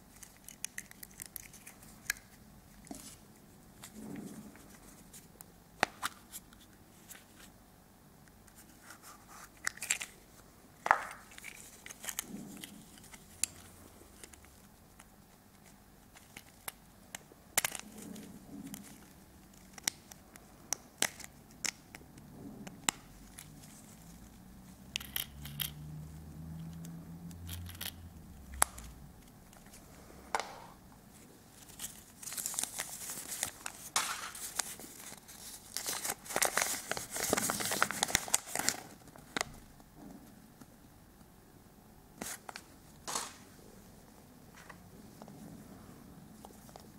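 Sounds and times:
paper leaflet crinkling: 31.4 - 39.6.

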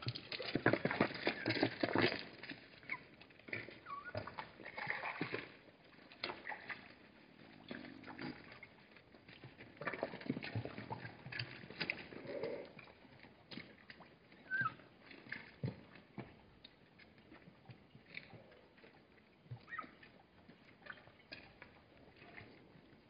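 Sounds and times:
animals slurping water: 0.0 - 16.4, 17.3 - 23.0.

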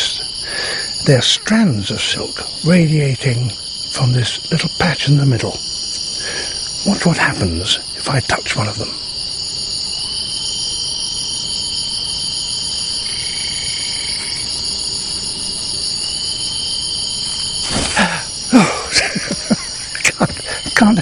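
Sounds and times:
insects chorus: 0.0 - 21.0.

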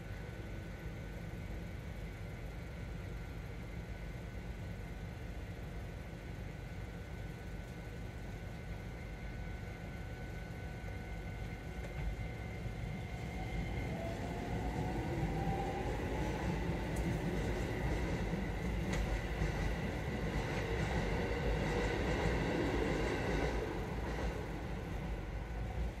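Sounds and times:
train whine rising in pitch: 9.0 - 26.0
train wheels rumbling and clicking: 11.2 - 26.0.

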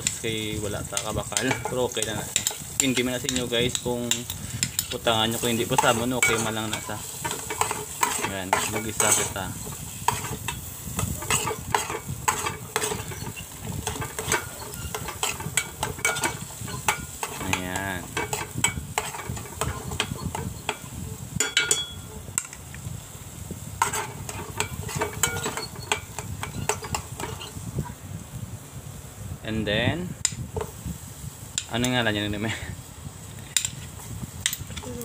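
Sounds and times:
vegetables sizzling in a pot: 0.0 - 35.0
spoon clinking against pot: 1.0 - 9.4, 10.1 - 22.1, 23.8 - 27.5
metal spoon scraping a pot: 1.0 - 22.2, 23.8 - 27.6.

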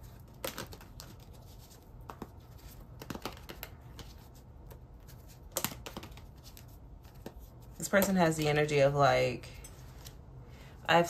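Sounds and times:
cards clicking and tapping: 0.1 - 7.4.

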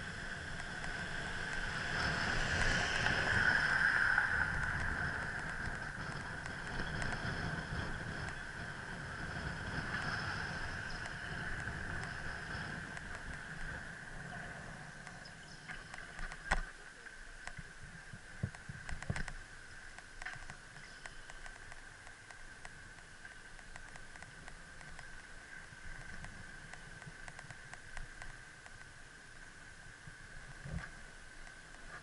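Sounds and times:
bicycle rolling hum: 0.0 - 32.0
bicycle knocks and rattles over bumps: 4.3 - 16.8.

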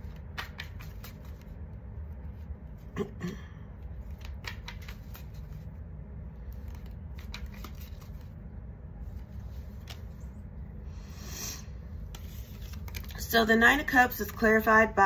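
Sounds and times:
cards being shuffled: 0.0 - 2.8, 3.8 - 5.7, 6.4 - 8.4, 9.1 - 10.3, 12.1 - 13.3
steady low hum: 0.0 - 15.0.

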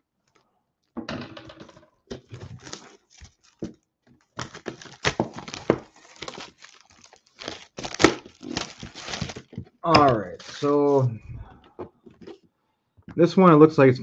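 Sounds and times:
plastic wrap crinkling and tearing: 2.2 - 11.1.

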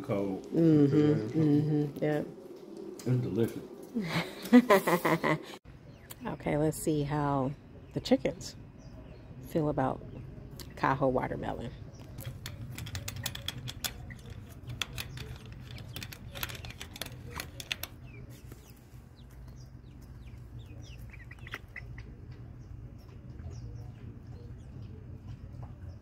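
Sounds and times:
chickens clucking and chirping: 11.9 - 26.0
sharp clicks and taps: 12.0 - 18.0.

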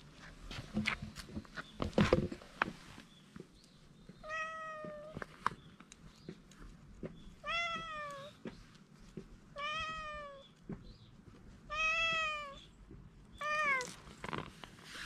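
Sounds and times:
cat meowing: 4.2 - 5.2, 7.4 - 8.4, 9.6 - 10.5, 11.7 - 12.7, 13.4 - 14.0.

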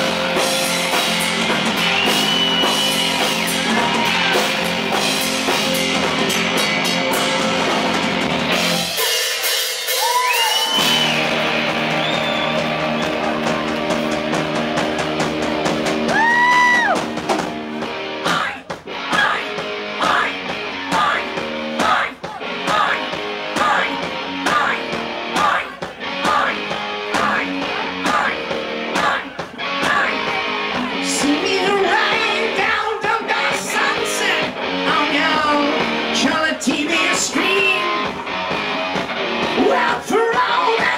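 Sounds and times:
bass guitar: 0.0 - 40.9
distorted electric guitar: 0.0 - 40.9
drums: 0.0 - 40.9
man singing and yelling: 18.2 - 38.3, 39.4 - 40.9.

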